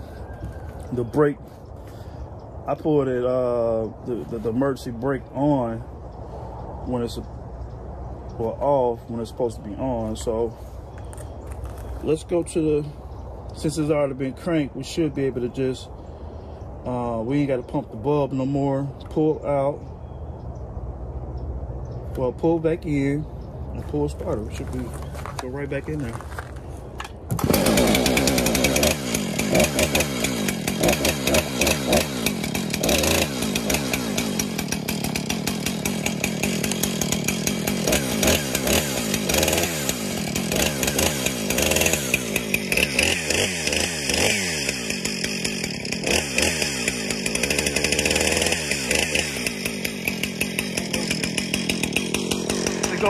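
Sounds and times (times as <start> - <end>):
chainsaw starting and revving: 8.3 - 19.8, 23.8 - 53.0.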